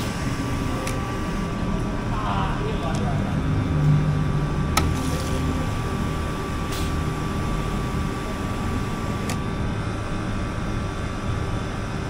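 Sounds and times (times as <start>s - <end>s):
mechanical hum: 0.0s - 12.0s.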